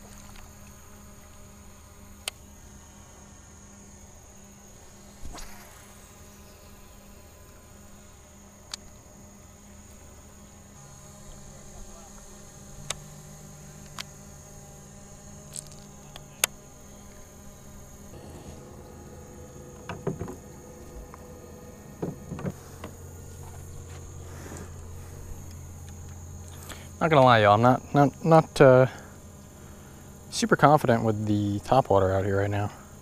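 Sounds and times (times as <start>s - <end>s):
high-pitched insect chorus: 0.0s - 33.0s
louder knocks: 19.7s - 20.6s, 22.0s - 23.0s.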